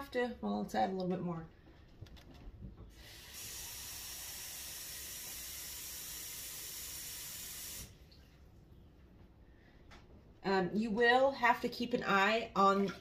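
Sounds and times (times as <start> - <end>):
kitchen tap running: 2.9 - 8.2.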